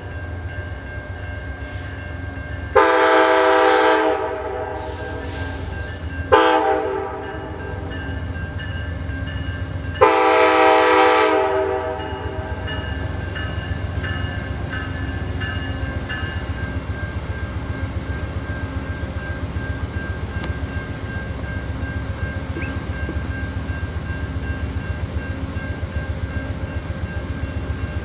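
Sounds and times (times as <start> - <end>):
train wheels rumbling on rail: 0.0 - 28.0
locomotive air horn: 2.8 - 5.7, 6.3 - 7.5, 10.0 - 12.4.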